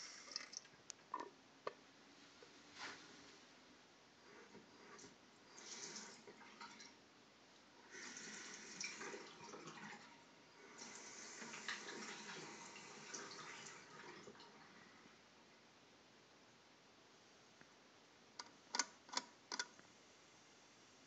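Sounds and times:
toilet tank refilling: 0.0s - 0.7s, 4.3s - 7.0s, 7.8s - 15.0s.

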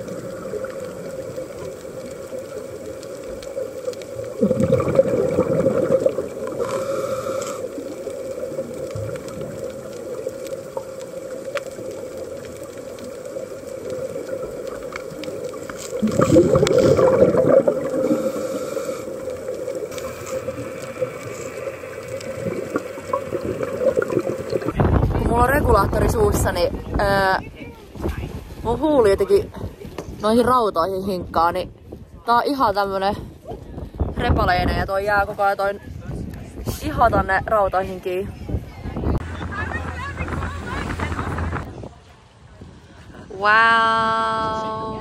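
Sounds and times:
steady underwater hum: 0.0s - 24.8s
underwater regulator bubbling: 0.0s - 24.8s.

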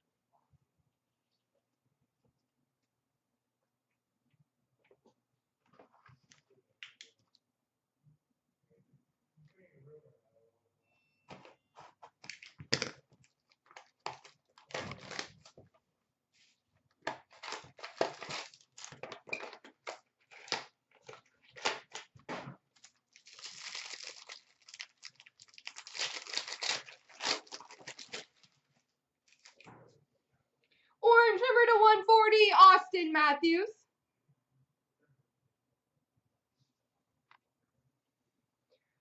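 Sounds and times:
wrapper and cardboard tearing: 13.2s - 15.5s, 17.3s - 19.6s, 20.2s - 22.1s, 22.8s - 28.6s, 29.3s - 29.6s
wrapping crinkling: 13.2s - 15.6s, 17.3s - 19.5s, 22.8s - 29.7s.

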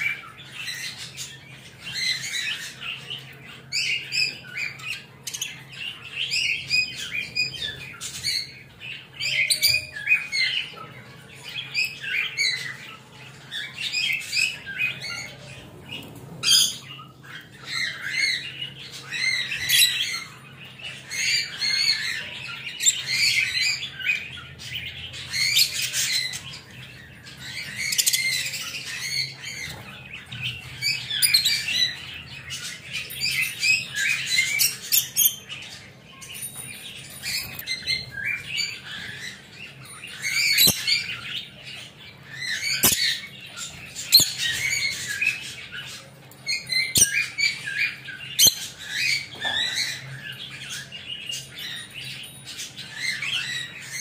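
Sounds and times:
budgies chirping and squawking: 0.0s - 54.0s.

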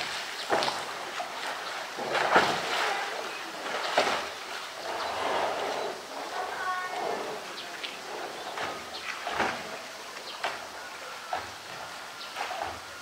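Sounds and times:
water washing: 0.0s - 13.0s.

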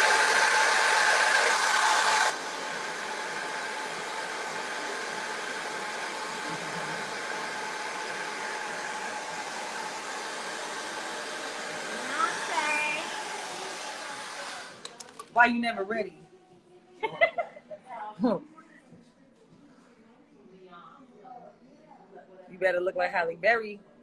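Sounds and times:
hair dryer blowing: 0.0s - 14.8s.

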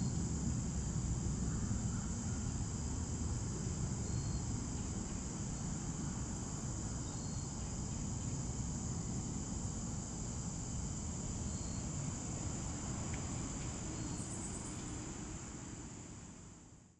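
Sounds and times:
insects trilling: 0.0s - 16.5s.

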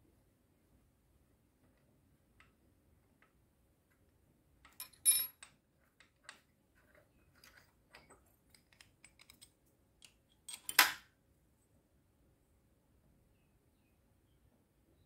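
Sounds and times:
metal parts clicking on workbench: 4.7s - 6.4s, 7.4s - 11.1s
metal clink with ring: 4.8s - 5.4s.

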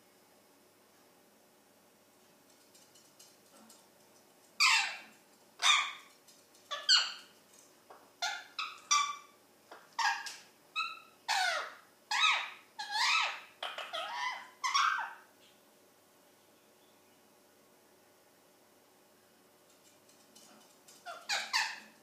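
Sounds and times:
parakeet calling loudly: 4.6s - 6.1s, 6.7s - 7.3s, 8.2s - 15.3s, 21.0s - 22.0s.

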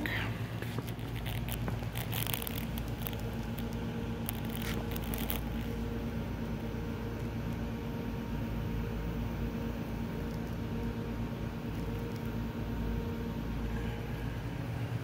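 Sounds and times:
faint clicks and rustles: 0.0s - 7.7s, 10.1s - 10.8s
machine hum with steady tones: 0.0s - 15.0s.

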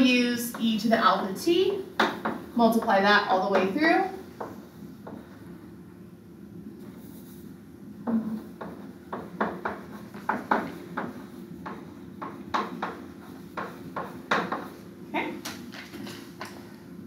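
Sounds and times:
chalk on blackboard: 0.0s - 5.5s, 6.8s - 7.5s, 8.1s - 14.8s.

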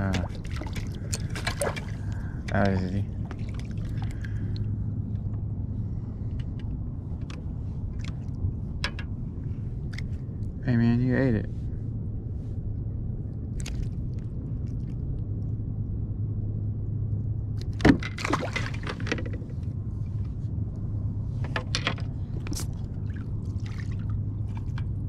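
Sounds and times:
fish splashing into water: 0.0s - 2.2s, 18.1s - 19.0s, 22.5s - 24.2s
soft water sounds: 0.0s - 16.9s, 17.5s - 25.0s
steady low hum: 0.0s - 25.0s.

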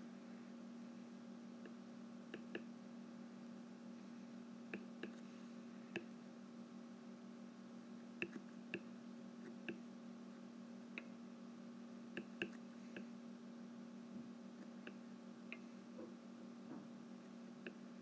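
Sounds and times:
faint low hum: 0.0s - 18.0s.

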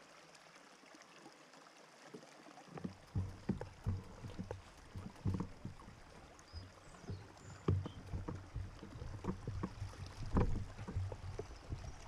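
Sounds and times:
water sloshing: 2.1s - 12.0s
wheels knocking on stones: 2.8s - 12.0s.

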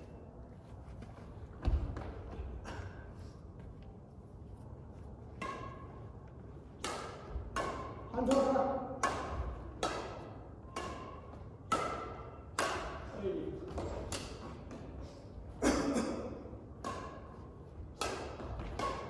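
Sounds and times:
badminton racket hitting shuttlecock: 6.7s - 13.1s, 13.7s - 14.9s, 16.8s - 19.0s.

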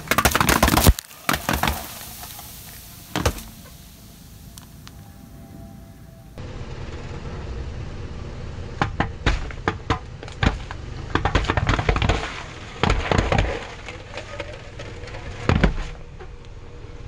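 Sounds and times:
car tyre crushing soda cans: 0.0s - 5.0s, 8.8s - 16.4s.

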